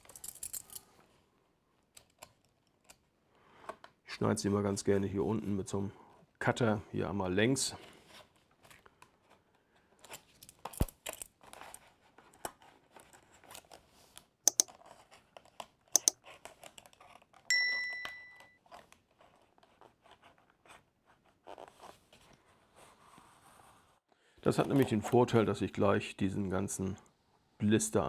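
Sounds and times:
sharp clicks: 14.5s - 14.7s, 16.0s - 16.2s
chime ringing: 17.5s - 18.6s.

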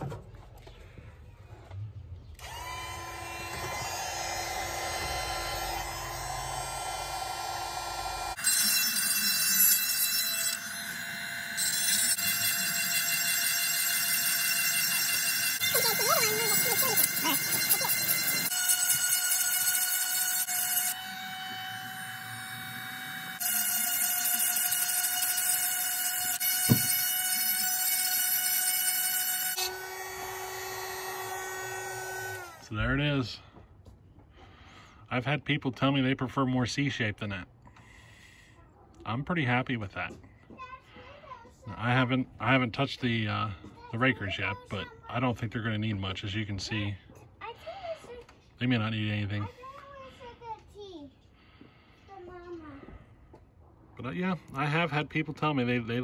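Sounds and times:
electric chain sharpener whining: 2.4s - 32.8s.

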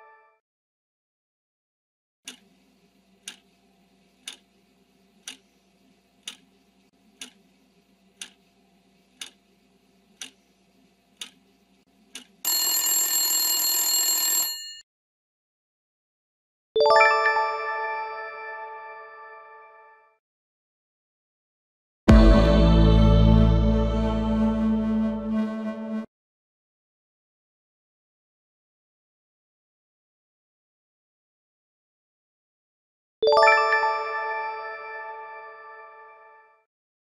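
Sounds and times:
clock ticking: 2.3s - 2.5s, 3.2s - 3.5s, 4.2s - 4.5s, 5.2s - 5.5s, 6.2s - 6.5s, 7.2s - 7.4s, 8.2s - 8.4s, 9.2s - 9.4s, 10.2s - 10.4s, 11.2s - 11.4s, 12.1s - 12.4s
alarm bell ringing: 12.5s - 14.8s.

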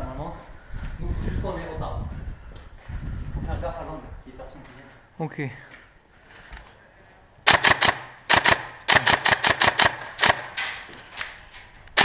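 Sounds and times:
airsoft rifle firing clicking shots: 7.5s - 10.9s.

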